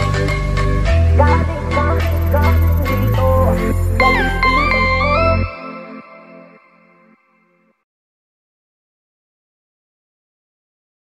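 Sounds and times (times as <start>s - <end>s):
dance track ending: 1.9s - 6.4s.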